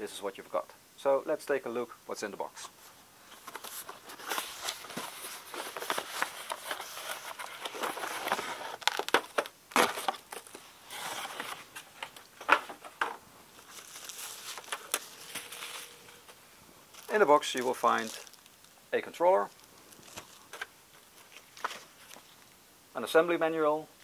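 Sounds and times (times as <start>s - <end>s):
cardboard rustling and scraping: 3.2s - 18.4s
paper crinkling: 3.3s - 12.9s, 13.6s - 18.7s.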